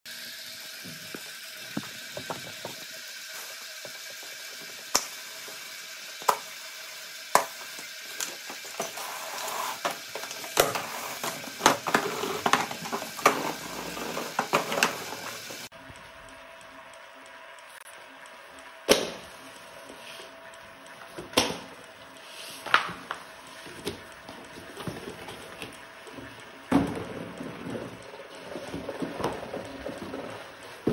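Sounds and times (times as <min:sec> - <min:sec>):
conveyor motor whine: 0:00.1 - 0:30.9.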